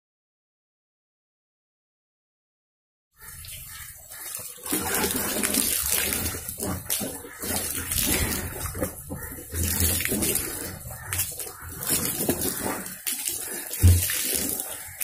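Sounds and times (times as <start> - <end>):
water pouring onto ground: 3.2 - 15.0
water sloshing in metal tank: 3.2 - 15.0.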